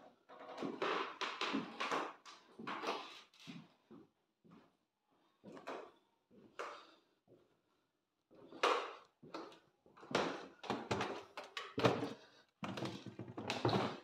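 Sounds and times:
footsteps on wooden floorboards: 0.4s - 4.7s, 8.5s - 14.0s.

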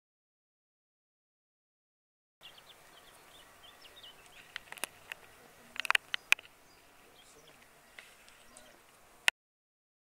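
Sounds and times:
small birds chirping: 2.4s - 9.3s
sharp clicks: 4.2s - 6.6s.

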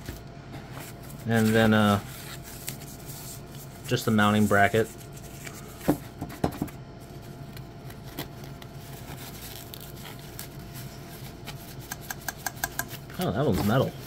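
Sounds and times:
foam wrap rustling: 0.0s - 6.2s, 7.0s - 11.9s
low steady hum: 0.0s - 14.0s.

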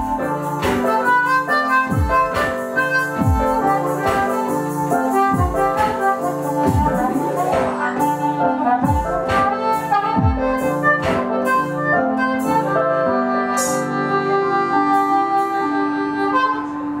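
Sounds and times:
electric piano chords: 0.0s - 17.0s
harmonica long notes: 0.0s - 17.0s
kick drum beats: 1.9s - 2.3s, 3.2s - 3.6s, 5.4s - 5.8s, 6.7s - 7.7s, 8.8s - 9.4s, 10.2s - 10.6s.

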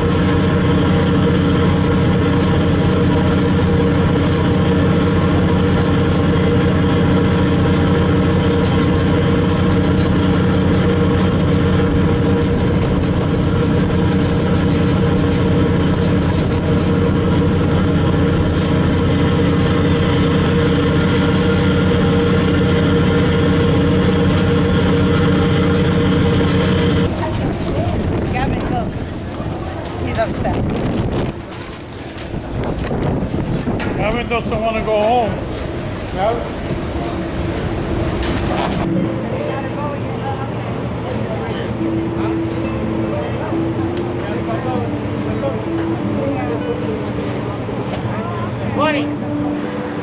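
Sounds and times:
ferry engine droning: 0.0s - 50.0s.

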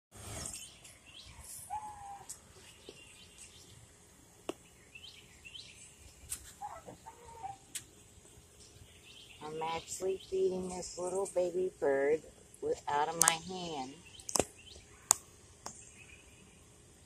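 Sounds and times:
small birds chirping: 0.2s - 16.8s
sharp clicks: 14.2s - 14.5s.

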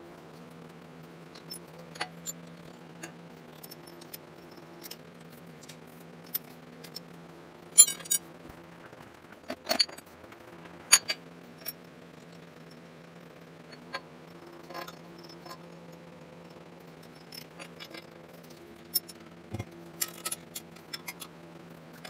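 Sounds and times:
steady low hum: 0.0s - 22.0s
metallic clinks of tools: 7.8s - 8.2s, 18.9s - 21.3s.

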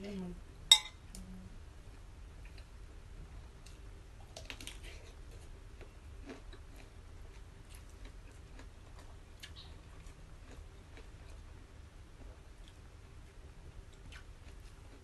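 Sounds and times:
chewing: 3.7s - 11.5s.

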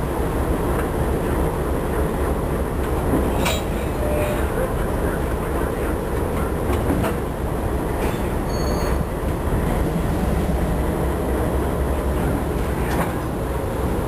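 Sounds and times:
locomotive diesel engine rumbling: 0.0s - 14.0s.

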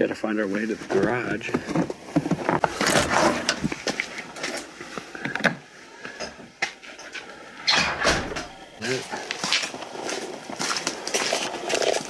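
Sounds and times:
footsteps: 6.0s - 12.0s
door opening: 7.6s - 8.6s.

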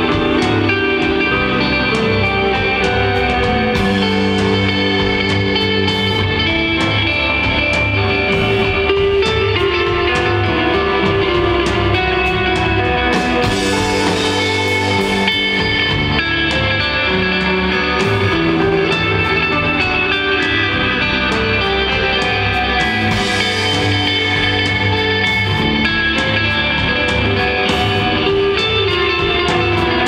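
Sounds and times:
drum kit with cymbals: 0.0s - 30.0s
electric bass: 0.0s - 30.0s
electric guitar: 0.0s - 30.0s.

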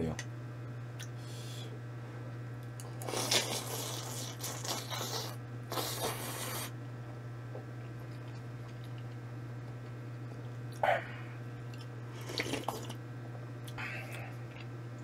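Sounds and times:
steady low hum: 0.0s - 15.0s
noodles being slurped: 3.0s - 6.7s, 12.1s - 13.0s.

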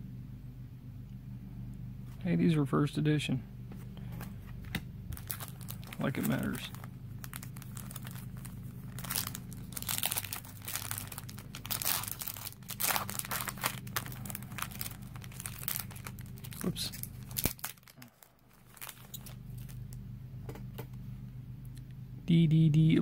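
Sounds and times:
foil wrapper tearing and crinkling: 5.1s - 19.9s.

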